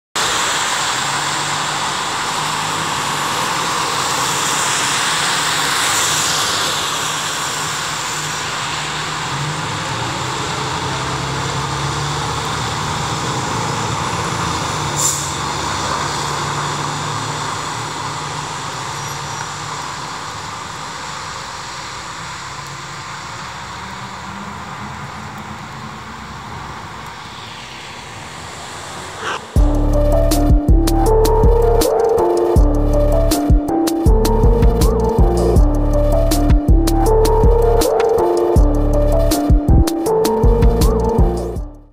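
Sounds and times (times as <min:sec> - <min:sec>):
diesel engine rumble: 0:00.2 - 0:26.8, 0:28.4 - 0:41.9
tyre noise on wet road: 0:00.2 - 0:41.1
short sharp high sound: 0:29.1 - 0:41.9.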